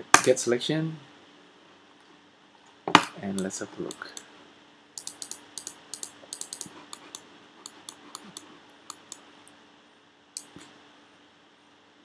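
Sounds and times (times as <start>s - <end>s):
faint steady hum: 0.0s - 12.0s
computer keyboard keys clicking: 5.0s - 9.2s.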